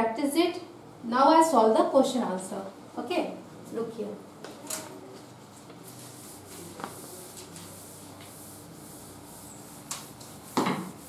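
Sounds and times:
eraser rubbing on chalkboard: 5.8 - 11.0.

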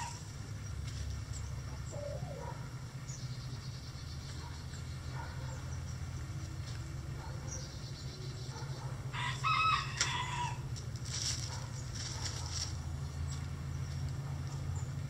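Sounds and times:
rooster crowing: 0.0 - 0.2, 9.1 - 10.7
faint chicken calls: 0.0 - 0.3, 1.5 - 3.2, 7.2 - 12.7.

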